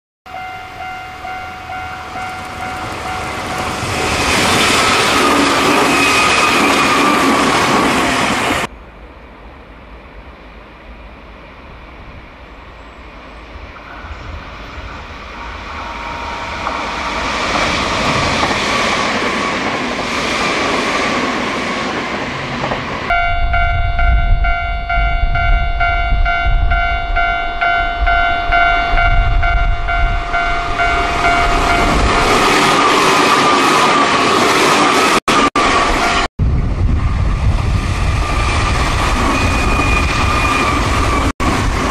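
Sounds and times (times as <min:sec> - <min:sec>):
high ringing tone: 0:00.3 - 0:07.4, 0:13.7 - 0:17.8, 0:23.1 - 0:32.6
electric trains passing: 0:00.3 - 0:41.9
low rumble: 0:36.4 - 0:38.3.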